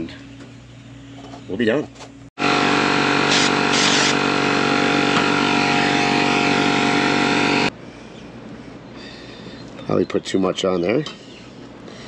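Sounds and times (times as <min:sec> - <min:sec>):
engine running: 0:02.4 - 0:07.7.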